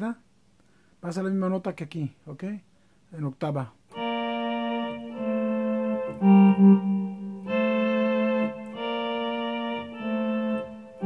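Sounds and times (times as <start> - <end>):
electronic keyboard slow melody: 3.9 - 11.0.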